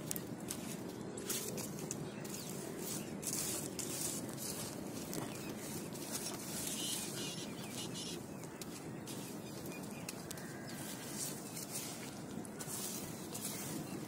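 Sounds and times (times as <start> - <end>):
matchsticks crackling and popping: 3.3 - 7.2.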